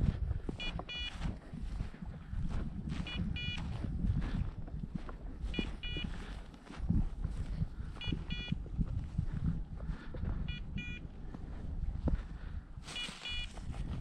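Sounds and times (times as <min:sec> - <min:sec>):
footsteps crunching through snowy grass: 0:00.0 - 0:14.0
wind on microphone: 0:00.0 - 0:14.0
beeper collar double beep: 0:03.0 - 0:03.6, 0:08.0 - 0:08.5, 0:10.5 - 0:11.0, 0:12.9 - 0:13.5.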